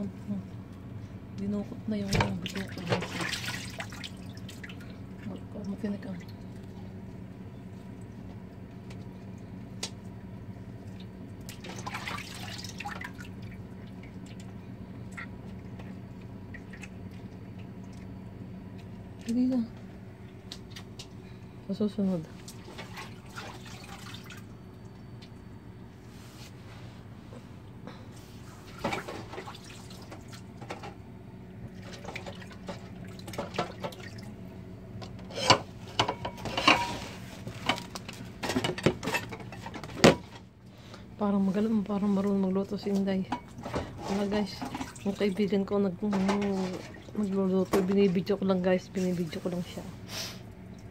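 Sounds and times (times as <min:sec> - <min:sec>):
steady low hum: 0:00.0 - 0:50.9
water splashing in a metal bowl: 0:02.1 - 0:06.5, 0:10.9 - 0:14.5, 0:15.1 - 0:18.1, 0:22.4 - 0:24.5, 0:31.8 - 0:34.4, 0:44.1 - 0:48.0
water splashing and dripping: 0:02.2 - 0:05.4, 0:10.9 - 0:14.5, 0:22.4 - 0:25.0.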